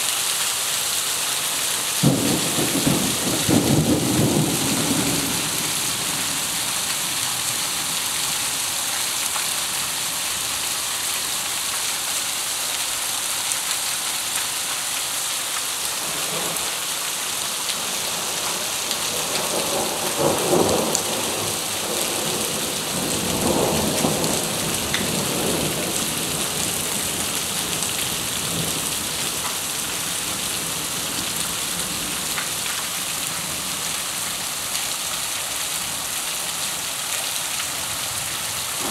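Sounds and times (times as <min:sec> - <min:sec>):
heavy rain on paving and water: 0:00.0 - 0:38.9
thunder rumbling: 0:02.0 - 0:06.4.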